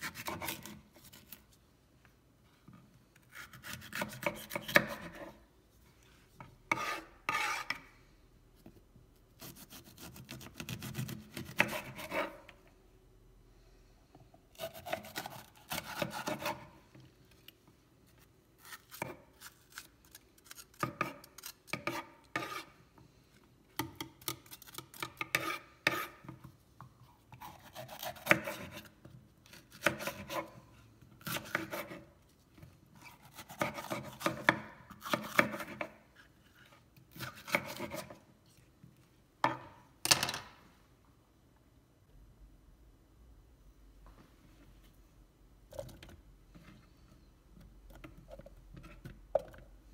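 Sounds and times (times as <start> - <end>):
knife slicing pepper: 0.0 - 1.4, 3.3 - 5.4, 9.4 - 12.4, 14.6 - 16.7, 27.3 - 28.9, 29.5 - 30.6, 31.2 - 32.1, 33.0 - 35.9, 37.1 - 38.2.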